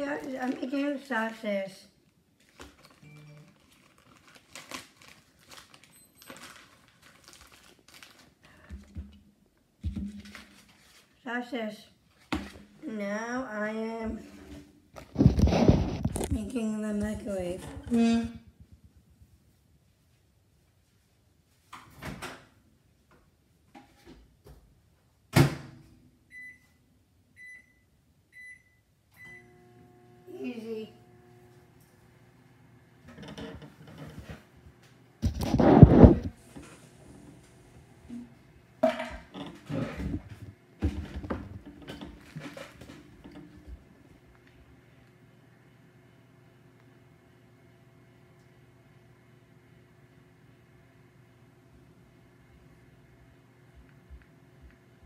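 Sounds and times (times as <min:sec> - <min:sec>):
plastic bag crinkling: 0:02.4 - 0:08.6.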